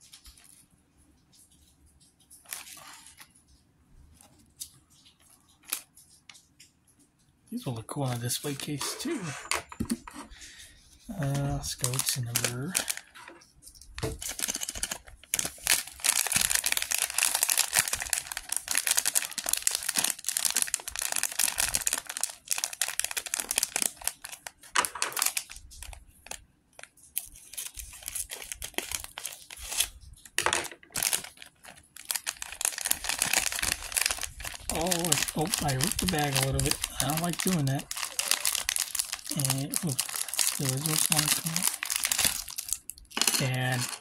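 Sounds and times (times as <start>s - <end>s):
plastic bag tearing and crinkling: 11.1s - 13.2s, 14.0s - 44.0s.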